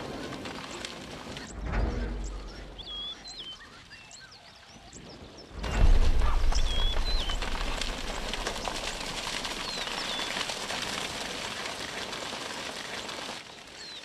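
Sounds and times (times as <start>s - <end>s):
hooves rumbling: 0.0s - 4.3s, 4.9s - 14.0s
whistled bird calls: 1.4s - 7.5s.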